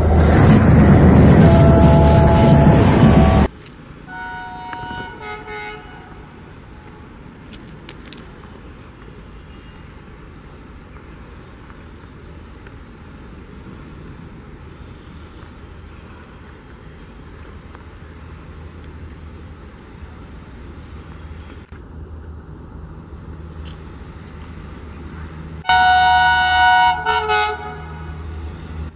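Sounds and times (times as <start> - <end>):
diesel locomotive engine rumble: 0.0 - 28.9
train horn blast: 1.3 - 3.5, 4.1 - 6.2, 25.6 - 28.3.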